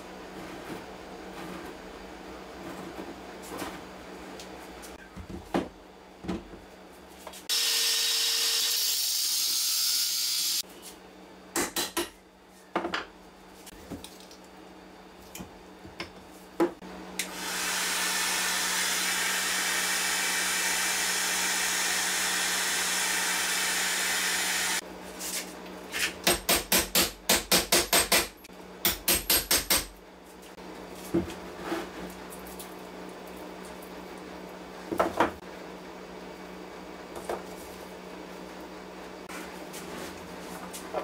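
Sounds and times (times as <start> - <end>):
heat gun blowing: 17.2 - 24.8.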